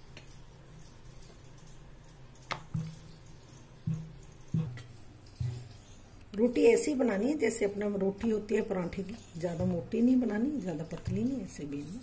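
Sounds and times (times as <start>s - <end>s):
rolling pin knocking on stone board: 3.9s - 5.7s.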